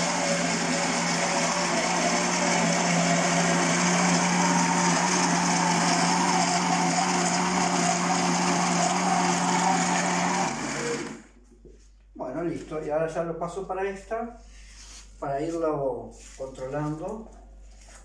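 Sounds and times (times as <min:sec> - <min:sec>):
blender motor running: 0:00.0 - 0:11.4.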